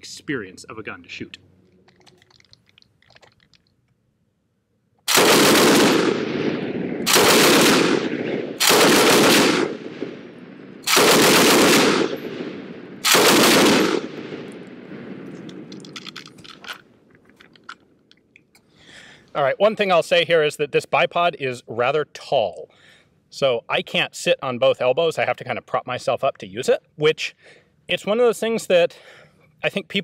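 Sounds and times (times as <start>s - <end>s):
faint clicks: 1.6s - 4.0s
machine gun bursts: 5.1s - 6.1s, 7.1s - 8.0s, 8.6s - 9.7s, 10.9s - 12.2s, 13.0s - 14.0s
gunshot echo: 5.1s - 15.7s.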